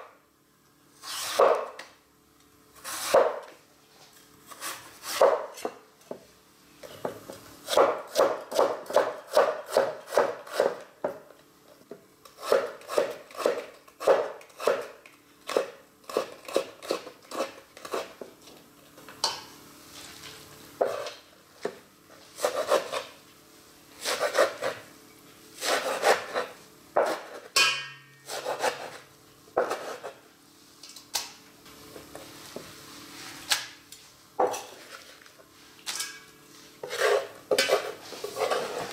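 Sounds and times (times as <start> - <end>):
knife chopping on wooden board: 2.9 - 3.5, 5.1 - 5.8, 7.7 - 11.2, 12.4 - 14.9, 25.6 - 27.5, 29.6 - 30.1.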